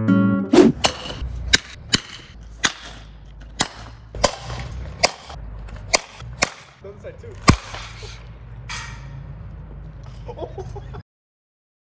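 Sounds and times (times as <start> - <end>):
sharp cracks: 0.6 - 6.8, 7.4 - 8.0.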